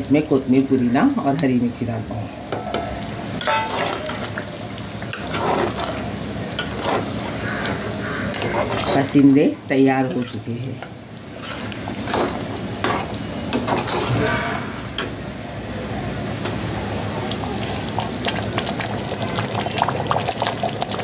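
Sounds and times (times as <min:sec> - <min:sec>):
curry bubbling: 0:02.8 - 0:14.2, 0:16.6 - 0:21.0
ladle scraping and clinking pot: 0:03.4 - 0:04.3, 0:05.1 - 0:09.1, 0:11.4 - 0:15.1.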